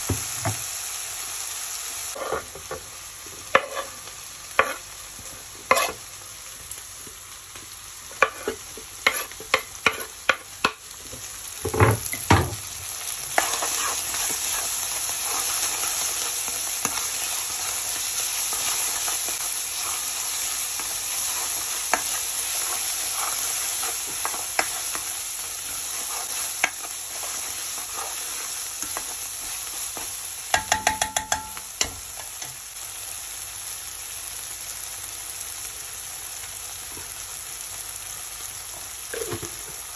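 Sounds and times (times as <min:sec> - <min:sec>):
food sizzling in oil: 0:00.0 - 0:39.9
spoon tapping pan: 0:28.8 - 0:32.6.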